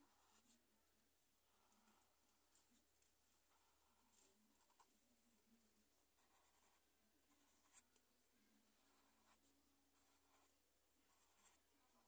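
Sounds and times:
marker scratching on paper: 0.0 - 0.6, 3.5 - 4.9, 6.1 - 8.0, 8.7 - 12.0.

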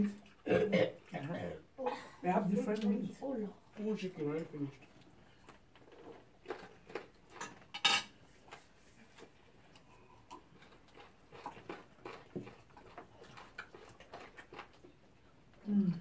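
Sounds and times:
clinking plates and cutlery: 7.4 - 8.2.

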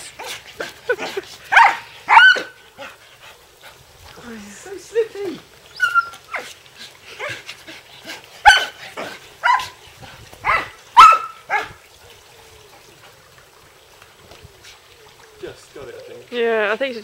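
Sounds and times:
dog barking: 1.5 - 2.6, 8.4 - 8.8, 9.4 - 9.8, 10.4 - 11.8.

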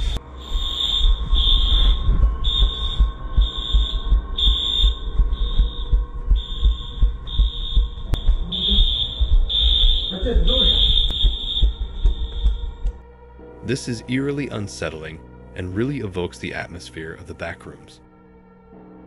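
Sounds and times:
fire alarm high-pitched beeping: 0.2 - 12.9
running footsteps thumping: 1.1 - 13.0.

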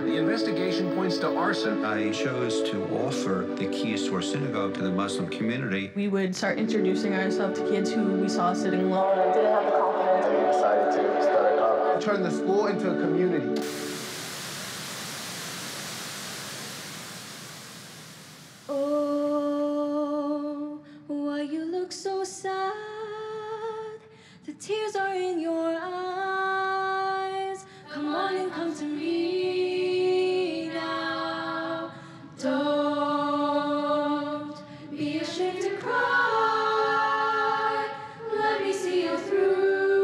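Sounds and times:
choir voices: 0.0 - 5.6, 6.6 - 16.4, 27.9 - 40.0
hiss: 13.6 - 19.4
girl singing: 18.7 - 34.4.

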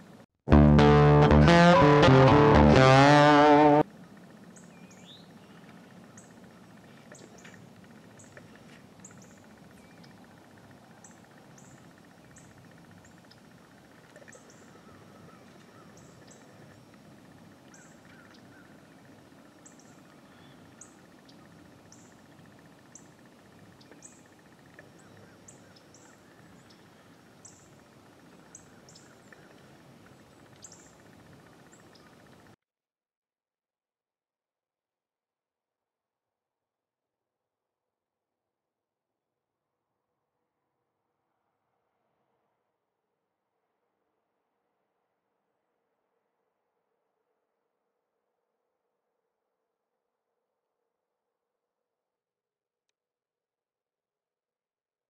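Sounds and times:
small birds chirping: 4.5 - 32.4.

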